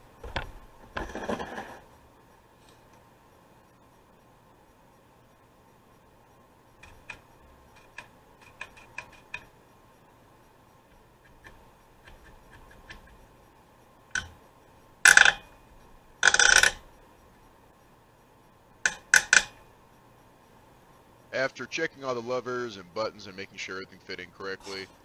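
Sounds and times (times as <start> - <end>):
small parts and tools clicking: 6.7 - 9.6, 14.1 - 15.6, 16.2 - 17.0, 18.8 - 19.7.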